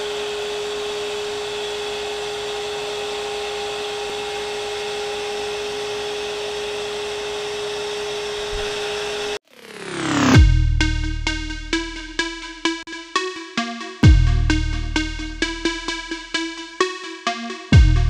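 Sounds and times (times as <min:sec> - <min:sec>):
router spindle whining: 0:00.0 - 0:09.4.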